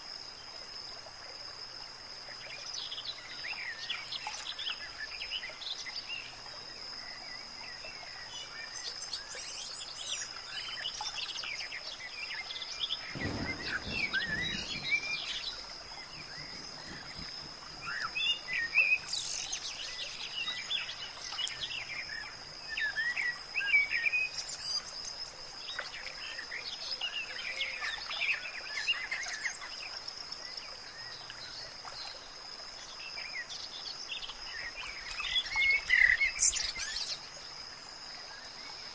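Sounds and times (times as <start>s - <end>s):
birds chirping: 12.4s - 25.2s, 33.0s - 37.2s.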